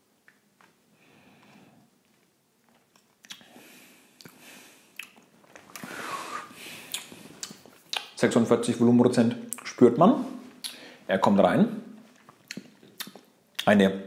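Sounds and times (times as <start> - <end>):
lips and tongue smacking: 2.7 - 3.6, 4.2 - 5.9, 6.8 - 8.2, 10.6 - 10.8, 12.2 - 13.7
man breathing out: 5.8 - 7.1.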